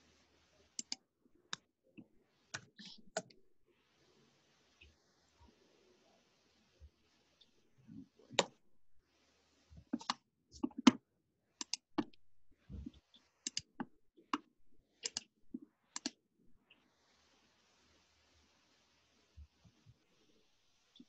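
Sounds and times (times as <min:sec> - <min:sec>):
keyboard and mouse clicks: 0:00.8 - 0:03.4, 0:08.4 - 0:08.6, 0:09.8 - 0:11.0, 0:11.6 - 0:12.2, 0:12.8 - 0:16.2.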